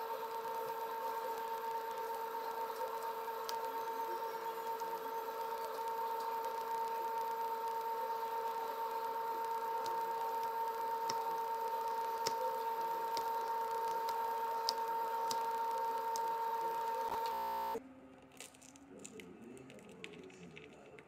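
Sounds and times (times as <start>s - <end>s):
two-tone machine hum: 0.0s - 18.0s.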